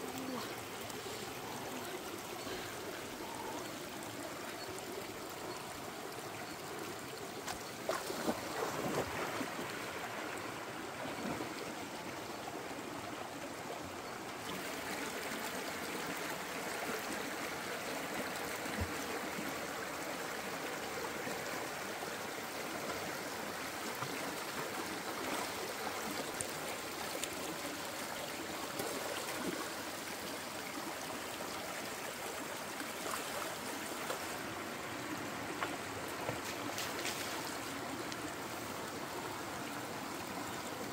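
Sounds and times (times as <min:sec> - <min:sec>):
stream babbling over stones: 0:00.0 - 0:40.9
water splashes: 0:07.4 - 0:10.2, 0:35.6 - 0:38.2.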